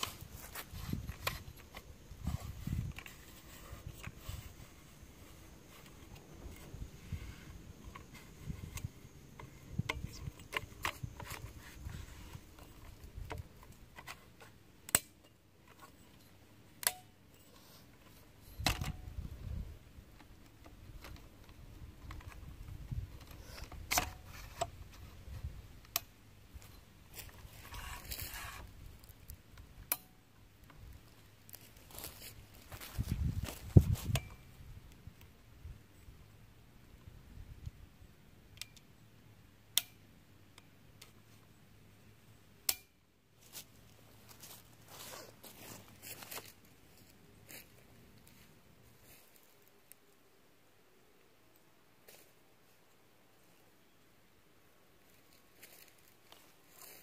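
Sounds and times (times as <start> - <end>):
tarp poles clicking: 0.0 - 19.1, 20.1 - 25.2.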